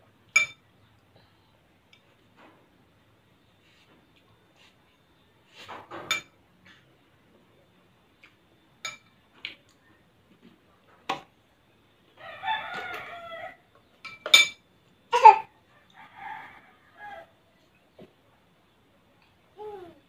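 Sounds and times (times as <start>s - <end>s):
spoons clinking on ceramic bowl: 0.3s - 0.6s, 6.1s - 6.3s, 8.8s - 9.1s, 14.0s - 14.6s
rooster crowing: 12.2s - 13.7s, 15.7s - 17.4s.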